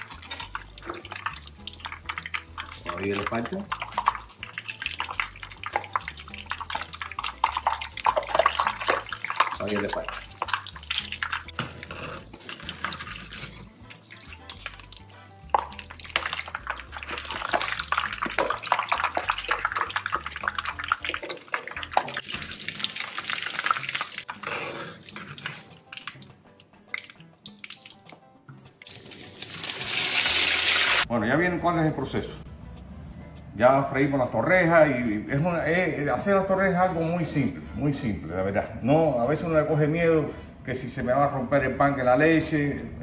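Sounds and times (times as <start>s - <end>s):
bread sizzling in hot oil: 12.4s - 24.4s, 28.7s - 31.1s.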